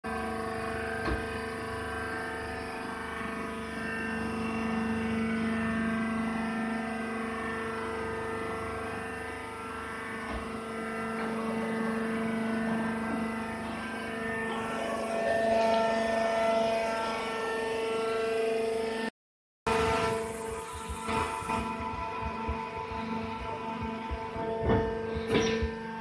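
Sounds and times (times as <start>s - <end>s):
baler machine hum: 19.7s - 26.0s
higher machine tones: 19.7s - 26.0s.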